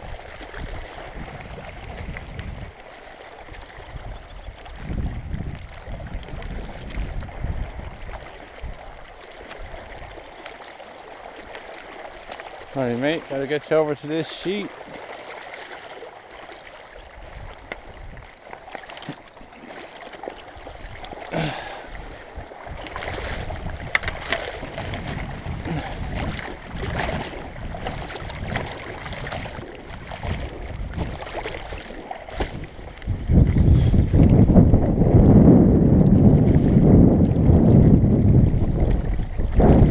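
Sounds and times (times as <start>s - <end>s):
water splashing and sloshing: 0.0s - 39.9s
hand swishing through water: 22.7s - 34.3s.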